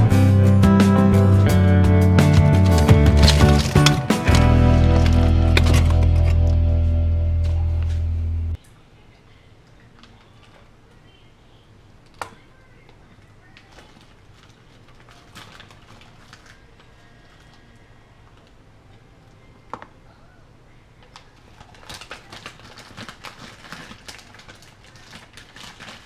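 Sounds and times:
low steady hum: 0:00.9 - 0:15.0.

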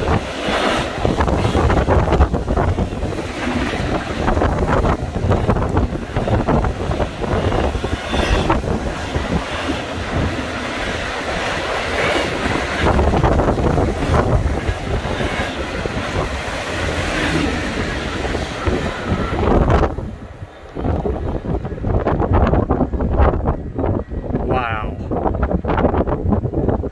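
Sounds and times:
freight train wheels rumbling: 0:00.0 - 0:26.9
wind on microphone: 0:00.0 - 0:26.9.

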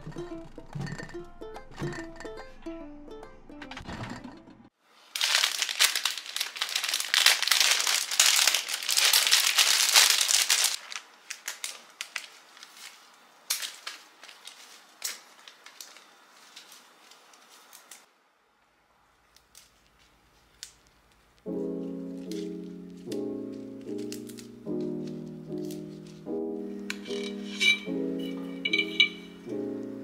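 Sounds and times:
wrapping paper crinkling: 0:05.0 - 0:18.1, 0:19.4 - 0:26.3.

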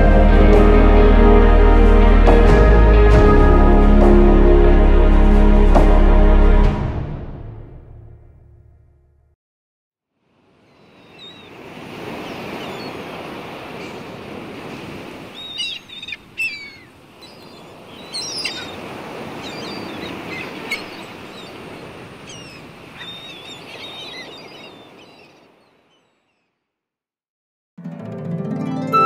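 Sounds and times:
ocean surf washing: 0:00.0 - 0:07.6, 0:10.4 - 0:26.0
birds chirping: 0:10.7 - 0:26.5.

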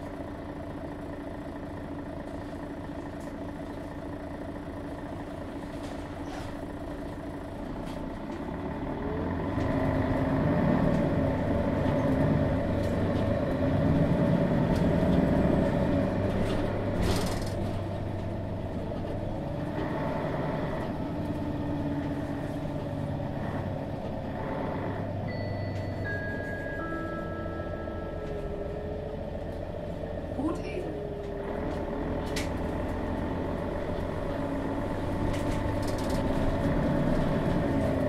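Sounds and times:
diesel bus engine running: 0:00.0 - 0:38.0.

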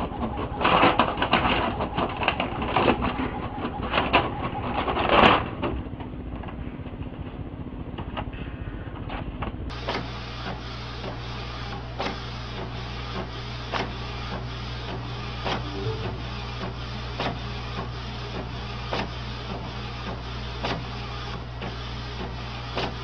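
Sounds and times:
inkjet printer printing: 0:00.0 - 0:05.4, 0:16.4 - 0:23.0.

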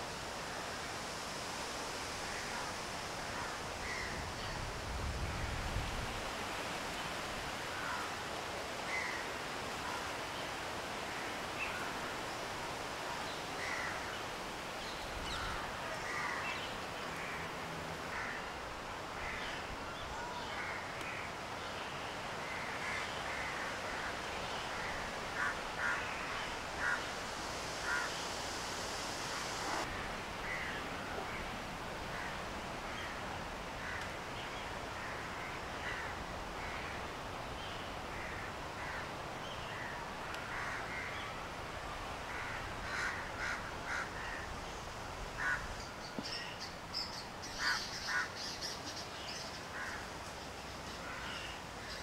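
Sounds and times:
wind rushing through leaves: 0:00.0 - 0:52.0
wind rumbling on microphone: 0:01.7 - 0:07.5
birds calling: 0:45.4 - 0:50.1.

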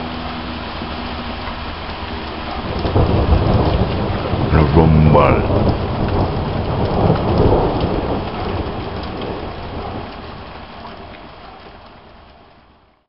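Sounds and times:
heavy rain: 0:00.0 - 0:13.0
thunder rumbling: 0:01.5 - 0:11.0.

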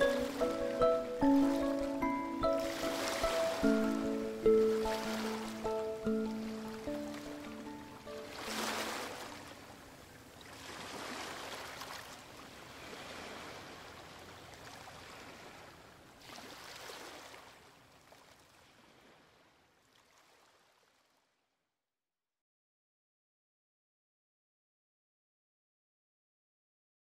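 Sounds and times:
waves washing ashore: 0:00.0 - 0:20.8.

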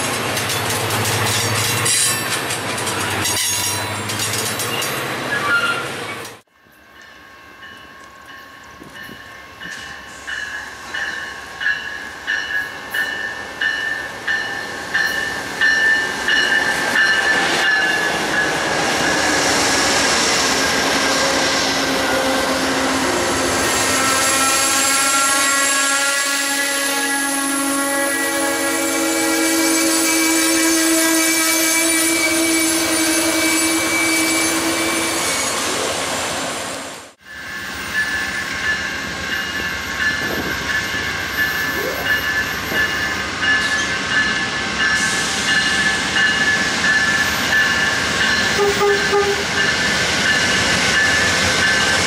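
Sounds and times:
train wheels clacking on rail joints: 0:00.0 - 0:06.4
rumble of train wheels: 0:00.0 - 0:25.8, 0:28.4 - 0:52.0
locomotive bell ringing: 0:00.4 - 0:05.8, 0:06.6 - 0:19.2, 0:37.2 - 0:52.0
train wheels squealing: 0:01.2 - 0:06.4, 0:20.4 - 0:35.9, 0:37.2 - 0:52.0.

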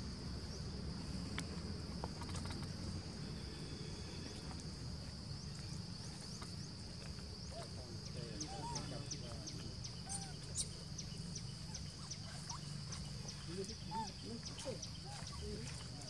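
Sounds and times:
insects buzzing: 0:00.0 - 0:16.0.

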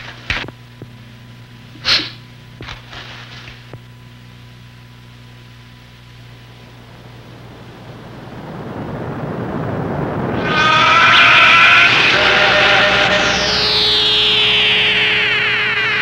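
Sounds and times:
low film soundtrack hum: 0:00.0 - 0:16.0
man sneezing: 0:01.8 - 0:02.3
man sniffing: 0:01.8 - 0:02.3.

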